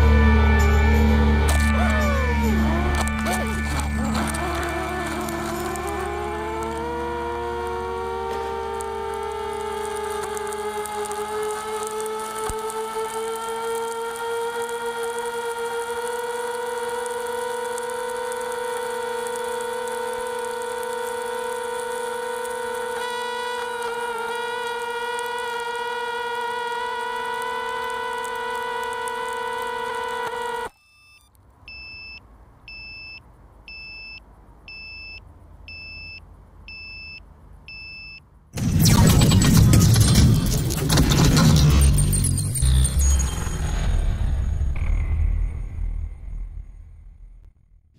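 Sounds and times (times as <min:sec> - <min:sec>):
electric motor whine: 0:00.0 - 0:30.7
short electronic beeps: 0:30.7 - 0:38.2, 0:41.5 - 0:46.4.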